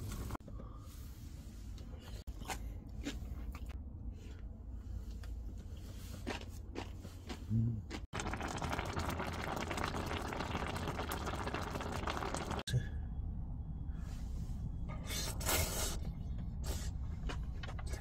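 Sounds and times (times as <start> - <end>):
pot simmering with crackling hiss: 8.2 - 12.7.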